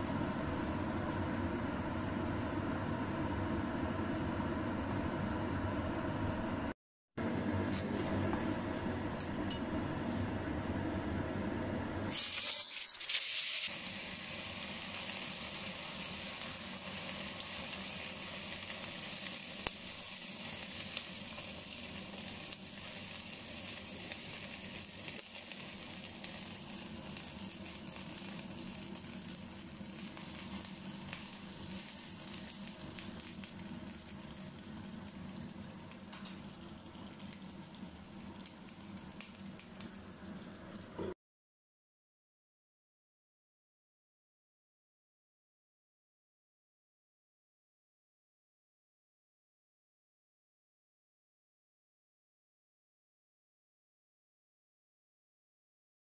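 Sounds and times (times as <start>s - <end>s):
dumplings sizzling in frying pan: 12.1s - 41.0s.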